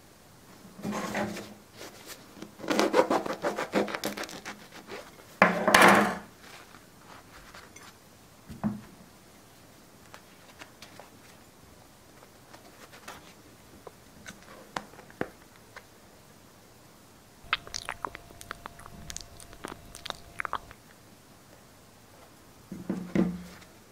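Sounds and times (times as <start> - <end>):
bread crust crackling: 17.4 - 20.9.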